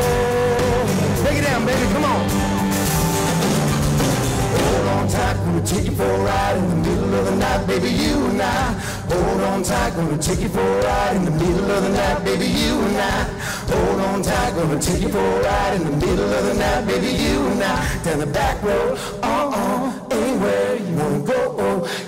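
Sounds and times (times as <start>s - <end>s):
people singing: 0.0s - 2.2s, 4.4s - 22.0s
country band playing: 0.0s - 9.9s.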